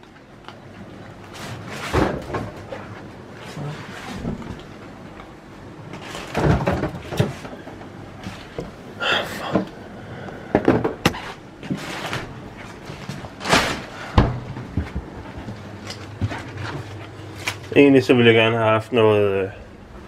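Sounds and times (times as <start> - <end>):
cupboard doors opening and shutting: 1.4 - 4.8, 6.0 - 9.8, 10.5 - 15.4
knocks and clatters of handled items: 5.9 - 8.7.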